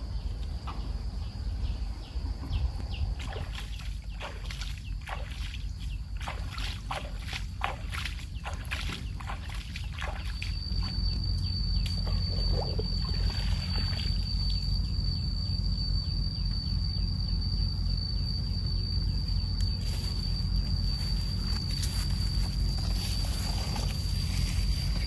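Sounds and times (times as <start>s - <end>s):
steady low rumble: 0.0s - 25.0s
high-pitched whine: 10.1s - 25.0s.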